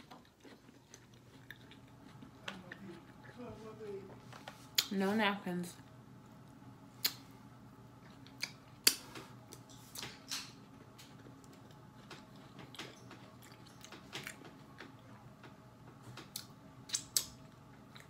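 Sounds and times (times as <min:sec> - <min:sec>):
person chewing food: 0:00.0 - 0:03.4, 0:07.9 - 0:18.0
wet mouth clicks and smacks: 0:07.0 - 0:07.3, 0:16.3 - 0:17.4.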